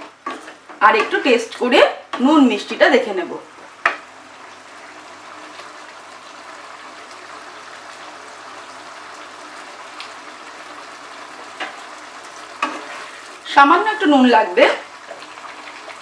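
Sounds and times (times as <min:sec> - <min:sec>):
curry bubbling and hissing: 0:03.7 - 0:16.0
faint taps: 0:03.8 - 0:04.0.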